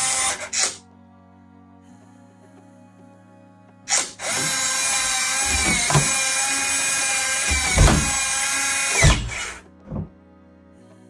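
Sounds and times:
lock motor whirring: 0:00.0 - 0:00.8, 0:03.9 - 0:10.1
heavy knocks: 0:04.3 - 0:10.1.

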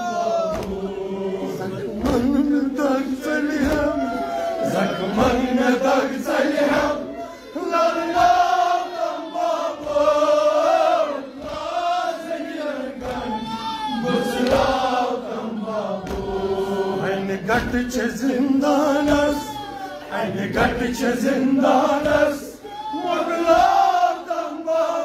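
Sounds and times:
men chanting a lament: 0:00.0 - 0:25.0
chest-beating slaps: 0:00.5 - 0:01.0, 0:01.7 - 0:02.6.

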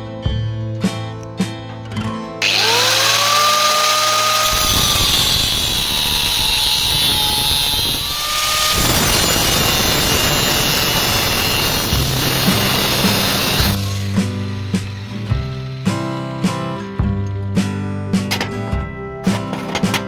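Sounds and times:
power tool motor whining: 0:02.4 - 0:15.8.

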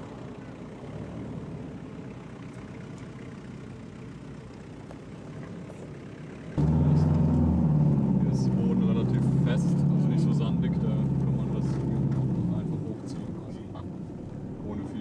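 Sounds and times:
car engine under load: 0:00.0 - 0:15.0
loud low engine drone: 0:05.6 - 0:13.0.

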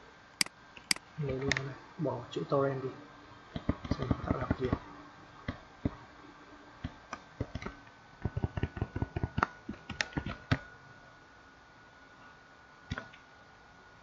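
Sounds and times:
faint steady hum: 0:00.0 - 0:14.0
keyboard typing: 0:07.4 - 0:10.6.

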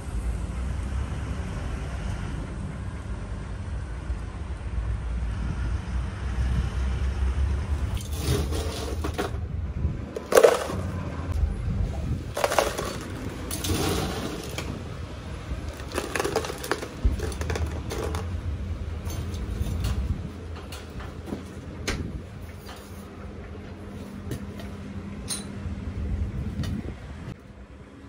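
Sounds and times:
ice cubes clattering into cup: 0:10.2 - 0:11.0, 0:12.4 - 0:14.7, 0:15.7 - 0:18.4
clinks of ice: 0:15.7 - 0:18.3.

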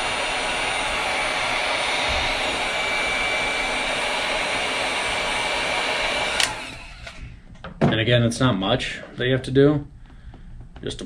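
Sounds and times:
heat gun blowing with whine: 0:00.0 - 0:07.5
heat gun switch click: 0:06.4 - 0:06.6.

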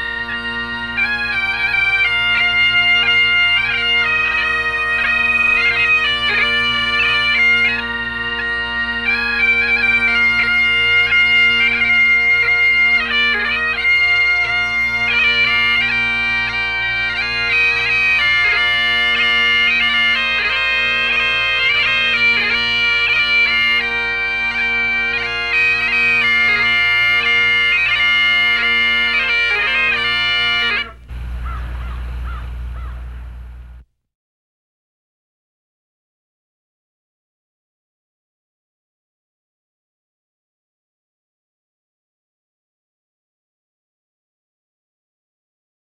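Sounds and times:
bagpipes playing a tune: 0:00.0 - 0:33.8.

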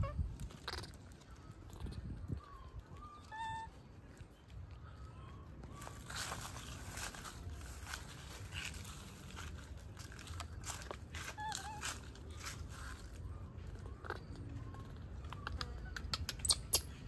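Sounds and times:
wavering squeak: 0:00.0 - 0:03.9, 0:11.1 - 0:13.1
twigs and leaves crackling: 0:00.2 - 0:16.2.

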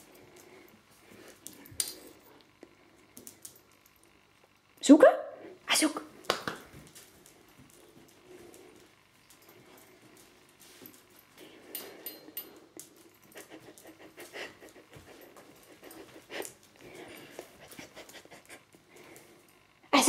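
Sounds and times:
dog panting: 0:13.0 - 0:19.4
dog sniffing: 0:13.3 - 0:18.6.

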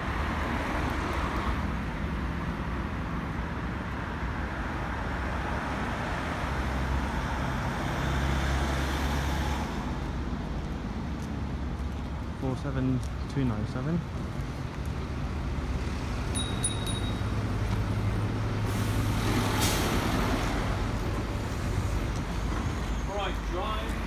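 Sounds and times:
road traffic passing: 0:00.0 - 0:24.0.

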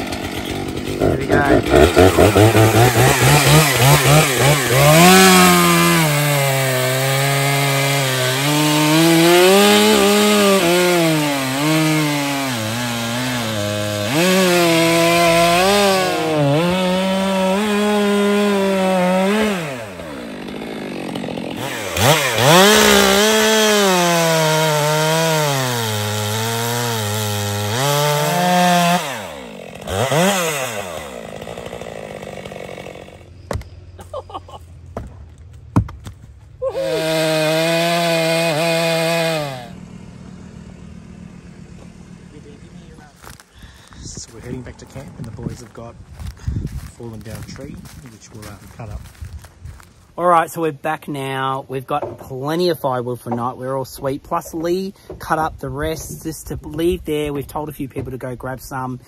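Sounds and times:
chainsaw cutting log: 0:00.0 - 0:50.4
sharp knocks: 0:33.5 - 0:33.7.

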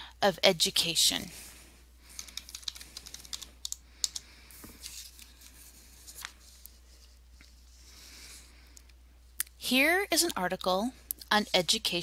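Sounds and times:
typing on computer keyboard: 0:02.1 - 0:04.2.

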